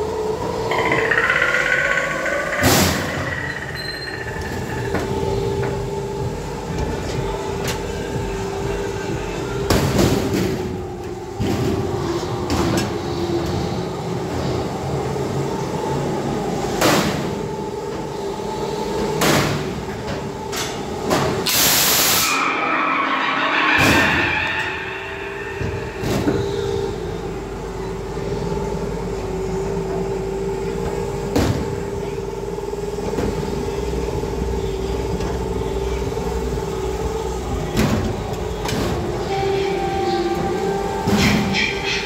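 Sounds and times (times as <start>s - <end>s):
ride car rattling on track: 0.0s - 8.9s, 34.5s - 42.0s
steady hum: 0.0s - 42.0s.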